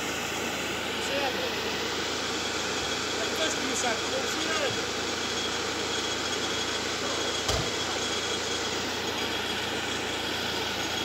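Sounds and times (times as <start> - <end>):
car engine idling: 0.0 - 11.0
thump: 7.5 - 7.7.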